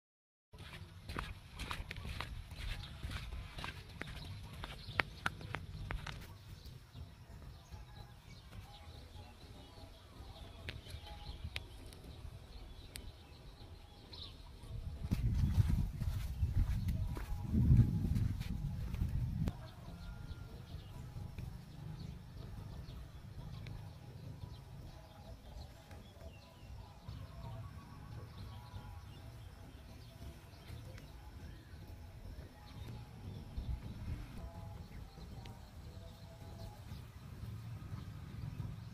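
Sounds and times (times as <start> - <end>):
small birds chirping: 0.6 - 38.9
low microphone rumble: 14.7 - 19.7.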